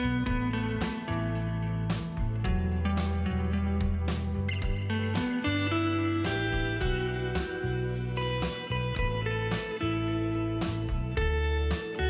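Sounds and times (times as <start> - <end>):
plucked guitar: 0.0 - 12.0
sustained bass line: 0.0 - 12.0
percussion hits: 1.9 - 5.6, 6.3 - 9.8.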